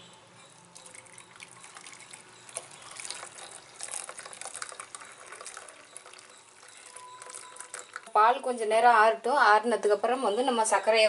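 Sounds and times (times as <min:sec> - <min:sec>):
milk pouring and splashing: 0:00.6 - 0:08.2.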